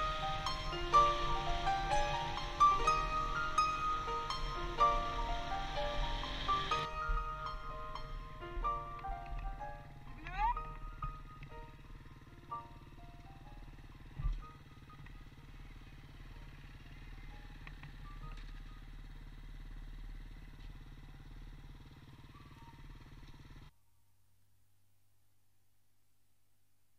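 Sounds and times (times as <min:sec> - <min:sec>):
faint music: 0:00.0 - 0:21.5
dirt bike engines idling: 0:00.0 - 0:23.7.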